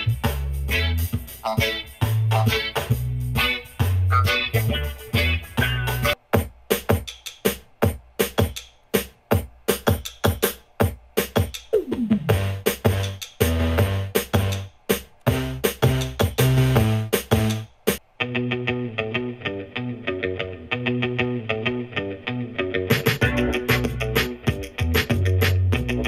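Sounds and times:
electronic music with drum-machine beat: 0:00.0 - 0:18.0, 0:22.9 - 0:26.0
strong bass line: 0:23.2 - 0:26.0.

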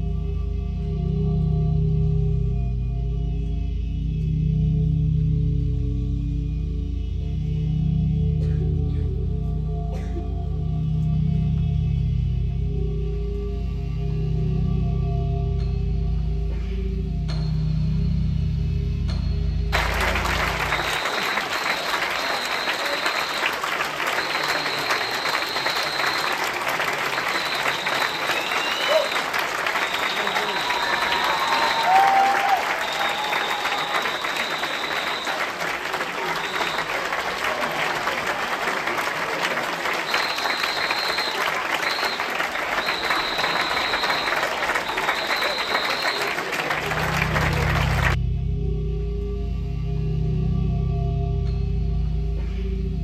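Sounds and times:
music: 0:00.0 - 0:37.5, 0:40.1 - 0:53.0
high steady whistle: 0:19.8 - 0:37.2, 0:40.0 - 0:48.2
audience applauding: 0:19.8 - 0:48.2.

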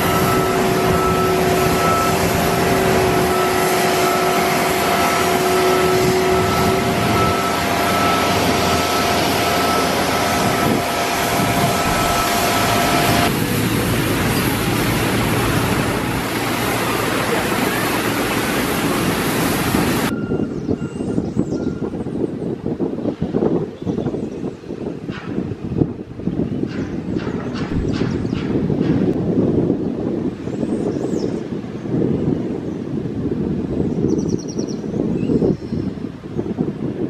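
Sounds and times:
jet noise rushing: 0:00.0 - 0:20.1
jet engine whine: 0:00.0 - 0:20.5.

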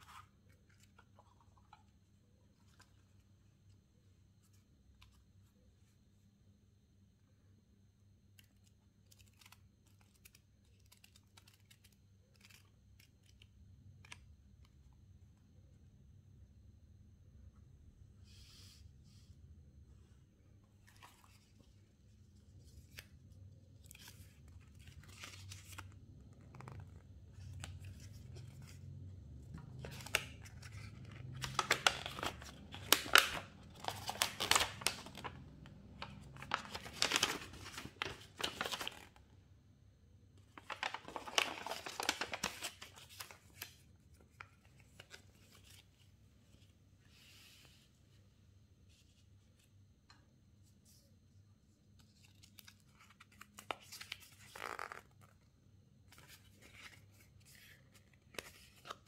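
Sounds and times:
paper leaflet rustling: 0:29.6 - 0:39.2, 0:40.6 - 0:46.0.

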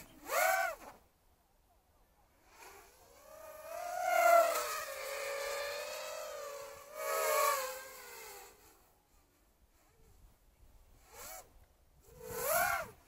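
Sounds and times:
drone propellers whining: 0:02.8 - 0:08.9.

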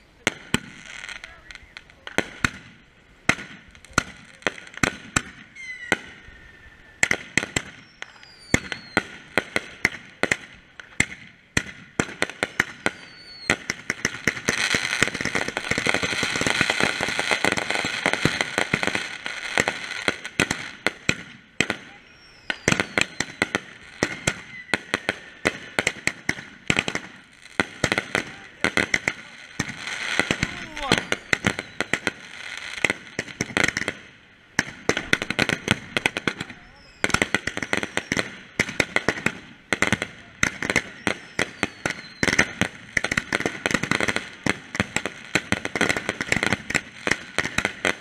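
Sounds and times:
dense firework crackling: 0:00.0 - 0:48.0
firework bangs: 0:00.2 - 0:48.0
falling firework whistles: 0:05.2 - 0:09.2, 0:12.5 - 0:19.8, 0:21.7 - 0:26.2, 0:29.6 - 0:32.3, 0:35.2 - 0:38.3, 0:40.7 - 0:42.6.

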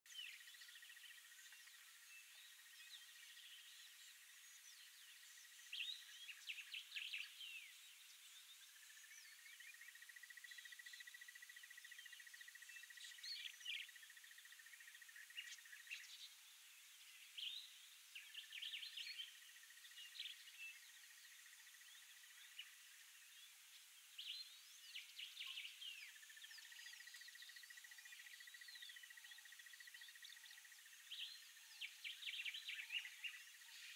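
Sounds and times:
bird chirps and calls: 0:24.2 - 0:33.9.

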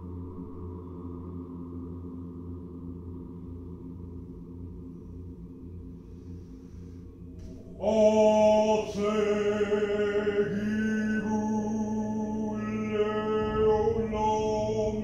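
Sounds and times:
dark ambient music: 0:00.0 - 0:15.0
person chanting a long tone: 0:07.6 - 0:15.0.

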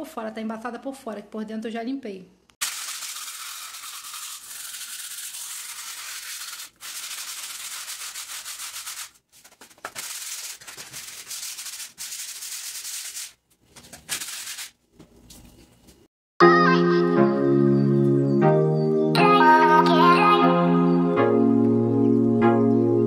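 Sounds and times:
sandpaper scraping plaster wall: 0:02.6 - 0:14.8.

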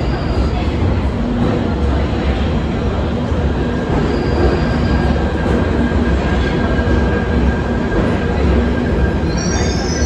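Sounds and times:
underground train rumbling: 0:00.0 - 0:10.0.

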